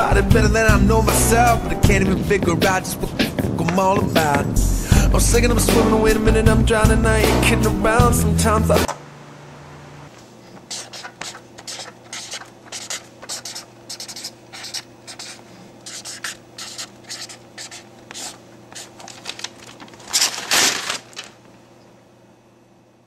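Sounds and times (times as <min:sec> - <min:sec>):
paper rustling: 0:10.2 - 0:21.5
marker scratching on paper: 0:10.7 - 0:19.0.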